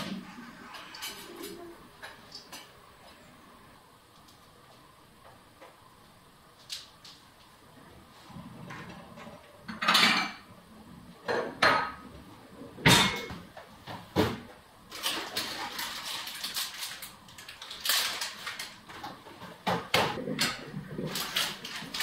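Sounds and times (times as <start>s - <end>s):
dishes and cutlery clattering: 9.7s - 10.5s, 12.8s - 13.4s
plastic bag handled: 14.9s - 19.2s, 20.7s - 22.0s.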